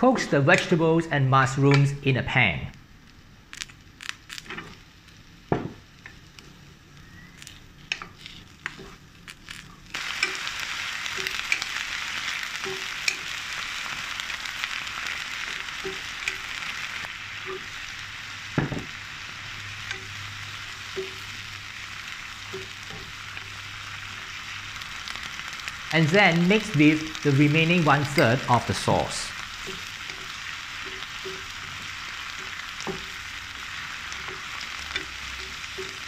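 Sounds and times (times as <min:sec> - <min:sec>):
vegetables sizzling in pan: 0:02.8 - 0:36.0
vegetables knocking into pan: 0:05.5 - 0:05.8, 0:18.5 - 0:19.0
spatula tapping and scraping: 0:34.2 - 0:36.0.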